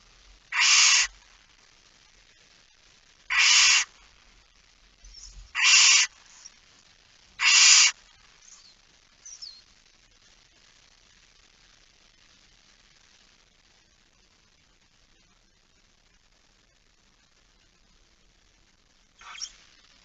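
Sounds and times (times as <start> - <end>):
owls hissing: 0.5 - 1.2, 3.3 - 4.0, 5.1 - 6.5, 7.4 - 8.6, 19.2 - 19.6.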